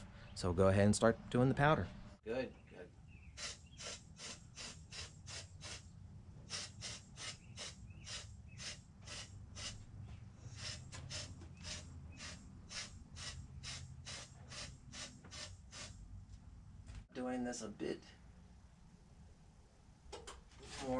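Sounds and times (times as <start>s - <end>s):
spray gun puffs of air: 3.4s - 9.8s, 10.4s - 16.0s.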